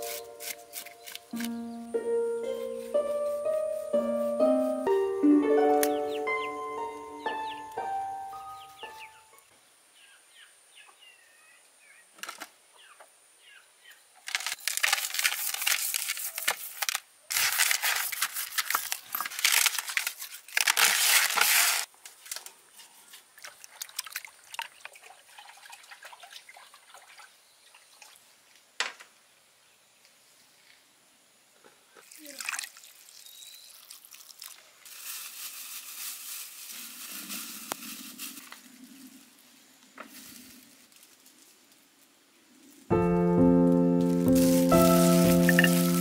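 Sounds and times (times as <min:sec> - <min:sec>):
water splashing and sloshing: 0:23.0 - 0:28.6.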